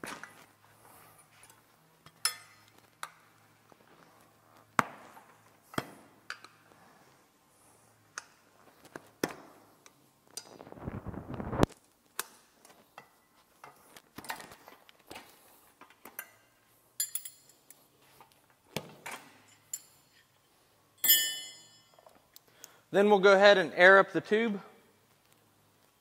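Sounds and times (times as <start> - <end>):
tire irons clinking on rim: 21.0 - 22.3.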